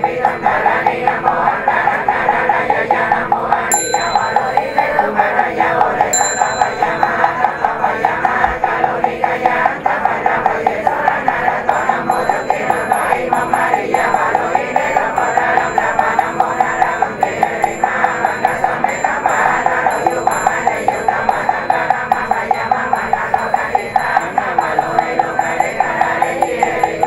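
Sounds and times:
fast knocking beat: 0.0s - 27.0s
person chanting: 0.0s - 27.0s
small hand bell ringing: 3.7s - 8.5s, 11.7s - 27.0s.

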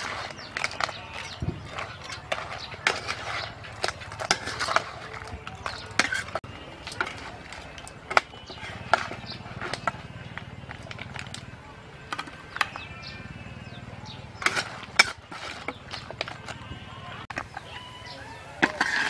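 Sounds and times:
metal spatula scraping a wok: 0.0s - 10.1s, 14.4s - 16.6s, 18.6s - 19.0s
crab shells clattering: 0.0s - 13.1s, 14.3s - 16.7s.

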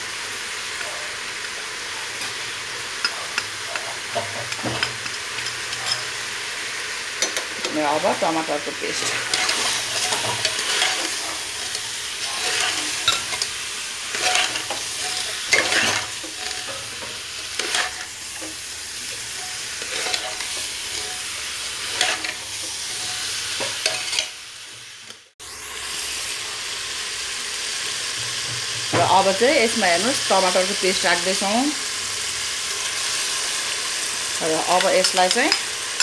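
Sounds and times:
food sizzling in oil: 0.0s - 36.0s
metal spatula scraping pot: 8.8s - 24.3s.

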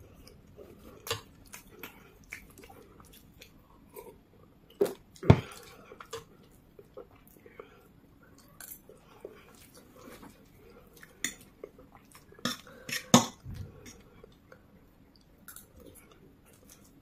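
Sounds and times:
close-up eating noises: 0.0s - 17.0s.

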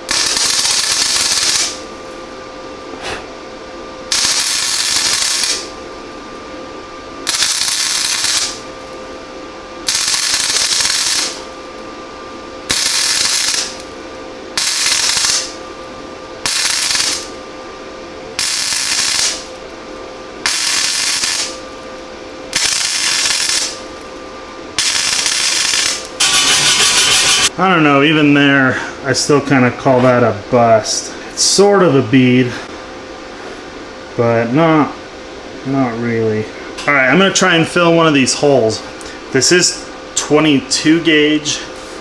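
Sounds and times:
welder arc crackling: 0.0s - 1.8s, 4.1s - 5.8s, 7.2s - 8.9s, 9.8s - 11.8s, 12.6s - 14.0s, 14.6s - 15.6s, 16.4s - 17.4s, 18.4s - 19.7s, 20.4s - 21.9s, 22.5s - 24.0s, 24.8s - 27.5s
welder hum: 0.0s - 28.7s.

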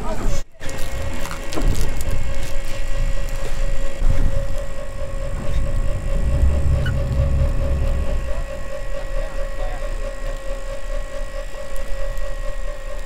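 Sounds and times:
outboard engines running: 0.0s - 13.0s
water churning along hull: 3.9s - 11.0s.

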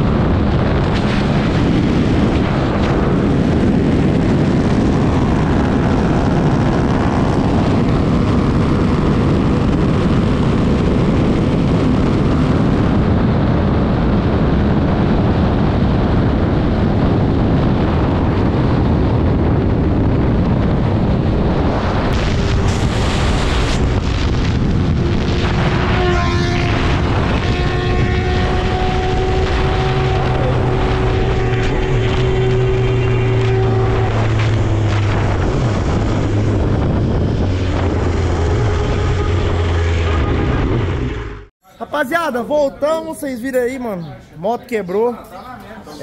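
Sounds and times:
motorcycle engine: 0.0s - 41.5s
wind rushing over microphone: 0.0s - 45.2s
road noise: 0.0s - 46.0s.

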